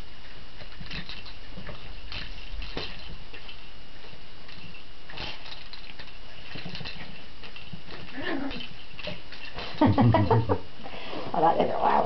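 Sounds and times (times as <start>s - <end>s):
puppy vocalizing: 7.9s - 9.9s.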